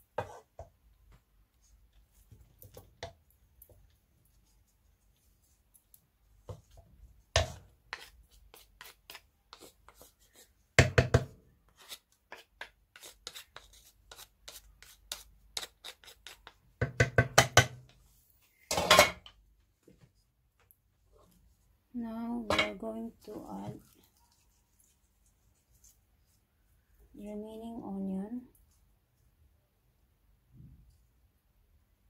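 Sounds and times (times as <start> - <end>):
spoon scraping and tapping in a pan: 0.0 - 0.8, 5.8 - 10.1.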